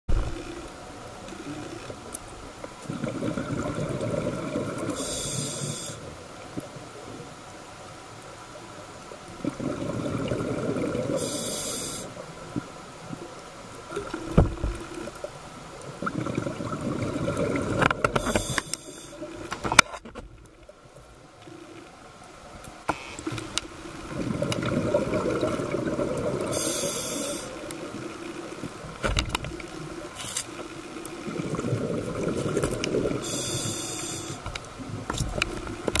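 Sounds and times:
diver exhaust bubbles rumbling: 2.9s - 5.0s, 9.4s - 11.2s, 16.0s - 18.2s, 24.0s - 26.6s, 31.2s - 33.2s
regulator hiss: 4.9s - 6.2s, 11.2s - 12.2s, 18.2s - 19.3s, 26.4s - 27.6s, 33.2s - 34.5s.

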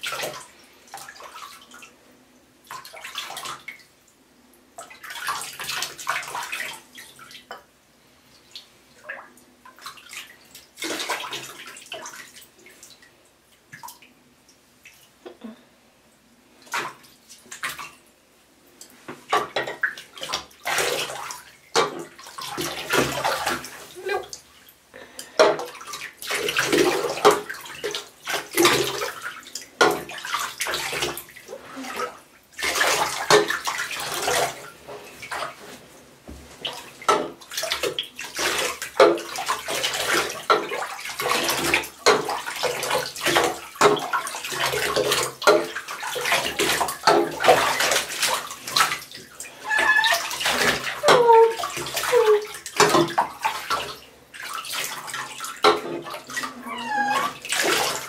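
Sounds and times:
bathwater sloshing and splashing: 0.0s - 2.0s, 2.6s - 15.6s, 16.5s - 58.0s.

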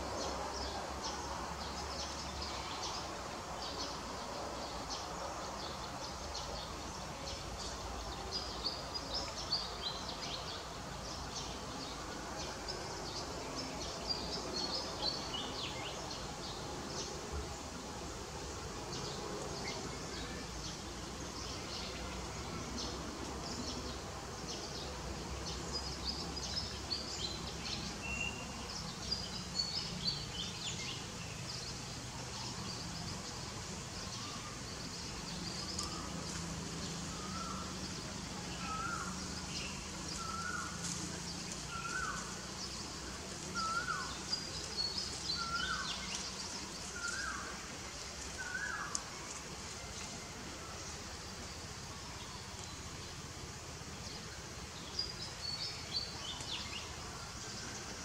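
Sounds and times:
birds chirping: 23.4s - 53.3s.

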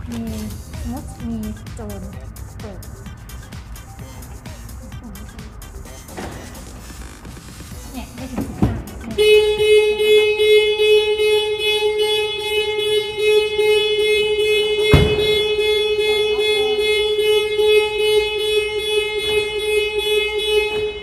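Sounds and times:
car horn alarm pulsing: 0.3s - 21.0s
thump: 8.3s - 8.9s, 14.9s - 15.5s.

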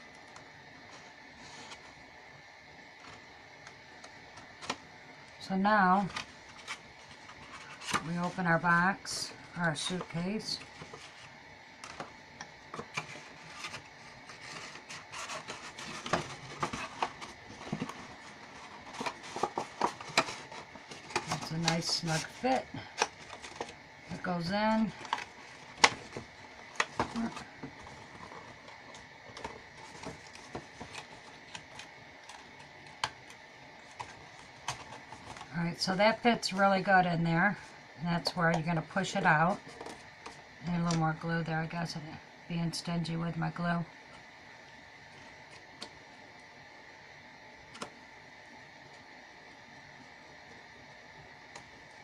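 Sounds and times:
cardstock rubbing and scraping: 0.9s - 2.0s, 5.8s - 8.8s, 12.7s - 32.6s
cardstock taps and rustles: 12.7s - 22.4s.

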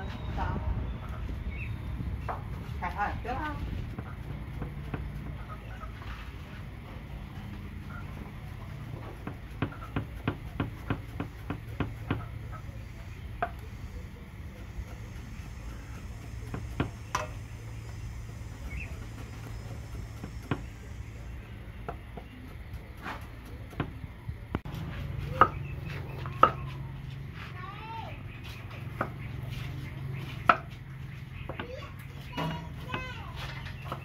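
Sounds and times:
cleaver chopping on wooden block: 9.2s - 12.3s, 15.8s - 17.4s.

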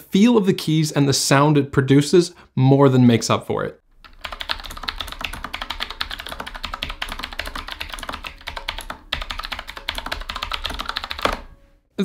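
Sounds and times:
clicky mechanical keyboard typing: 4.0s - 11.5s.

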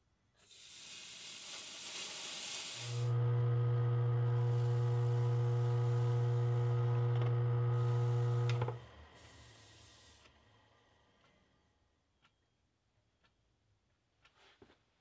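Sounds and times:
lathe motor humming: 3.1s - 9.0s.

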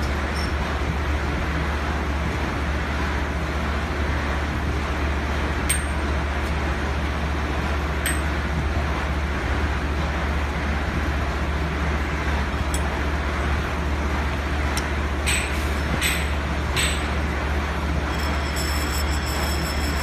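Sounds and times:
machinery hum: 0.0s - 20.0s
metal rings clinking: 18.1s - 20.0s.

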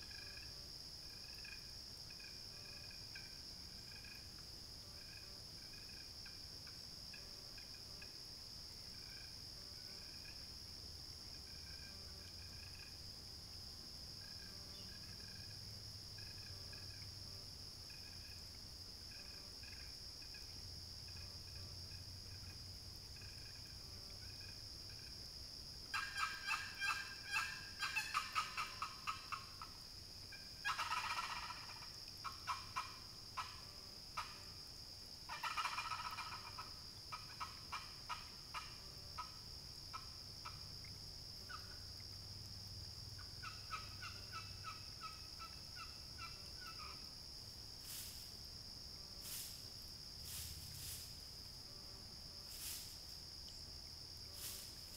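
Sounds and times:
high insect drone: 0.0s - 54.9s
turkey call yelps: 25.9s - 29.6s, 30.6s - 33.6s, 35.3s - 39.3s.

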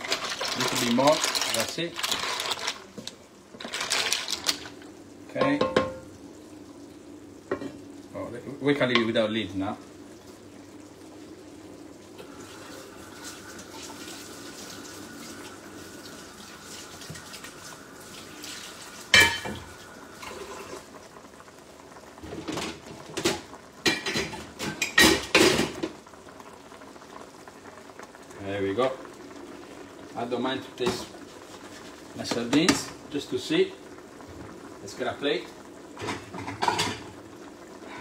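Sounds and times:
pots simmering: 0.0s - 38.0s
kitchenware clanging: 5.4s - 6.0s
knocks and clinks of kitchenware: 5.4s - 6.0s.

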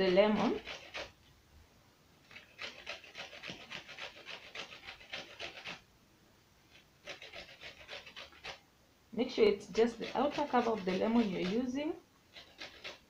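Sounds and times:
grater rasping: 0.0s - 1.2s, 2.2s - 5.8s, 6.7s - 8.6s, 9.7s - 13.0s.

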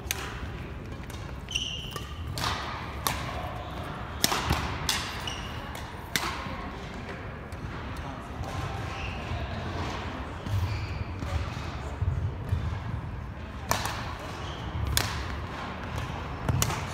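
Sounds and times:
rackets striking shuttlecock: 0.0s - 8.8s, 13.6s - 16.9s
sneaker squeaks on court floor: 1.4s - 2.2s, 5.1s - 5.8s, 10.4s - 11.4s, 14.3s - 14.8s.

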